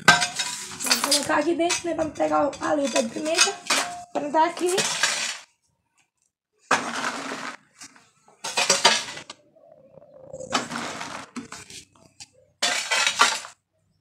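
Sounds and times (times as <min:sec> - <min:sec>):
shovel scraping tiled floor: 0:00.0 - 0:05.6, 0:06.7 - 0:09.4, 0:10.4 - 0:12.0, 0:12.6 - 0:13.6.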